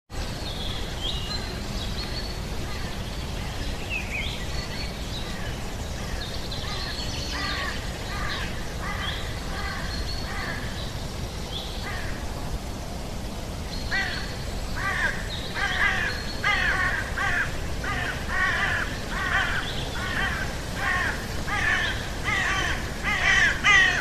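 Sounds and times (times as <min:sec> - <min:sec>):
harsh repeated bird calls: 0:13.8 - 0:24.0.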